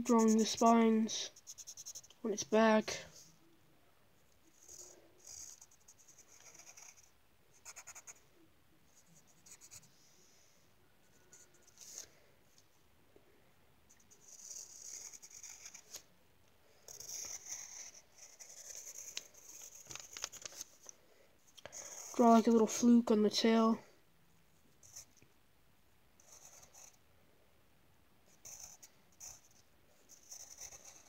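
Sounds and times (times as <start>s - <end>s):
pencil scratching on paper: 0.0s - 3.0s, 4.5s - 8.2s, 14.0s - 16.1s, 16.9s - 20.2s, 21.7s - 22.9s, 26.2s - 27.0s, 28.3s - 31.0s.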